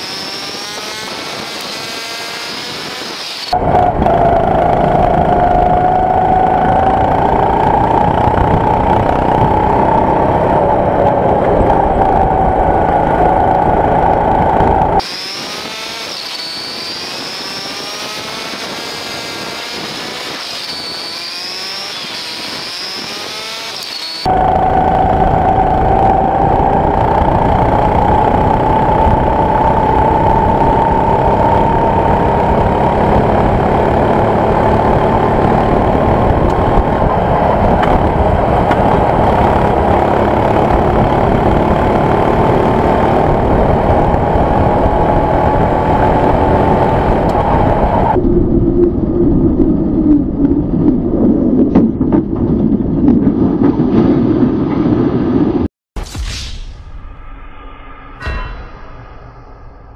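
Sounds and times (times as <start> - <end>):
go-kart engine running hard: 0.0 - 48.2
thin whine with wavering tones: 57.0 - 59.9.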